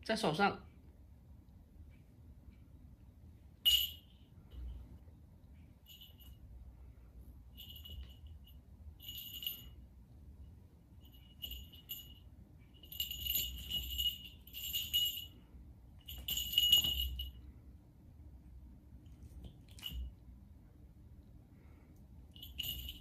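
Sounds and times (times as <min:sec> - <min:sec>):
cat collar bell jingling: 0:03.6 - 0:04.7, 0:05.8 - 0:06.6, 0:07.5 - 0:09.8, 0:11.0 - 0:15.4, 0:16.0 - 0:17.4, 0:19.6 - 0:20.1, 0:22.3 - 0:23.0.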